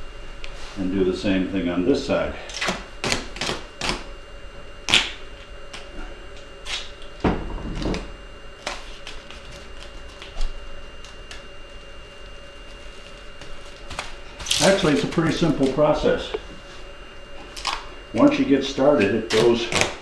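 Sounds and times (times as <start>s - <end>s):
duct tape ripping: 2.5s - 4.1s, 4.9s - 5.9s, 13.0s - 15.8s, 17.5s - 17.9s, 19.0s - 20.0s.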